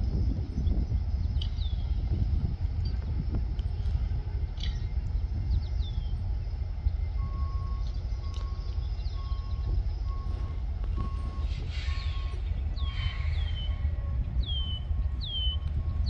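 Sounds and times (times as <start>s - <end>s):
steady low rumble: 0.0s - 16.0s
birds chirping: 4.6s - 16.0s.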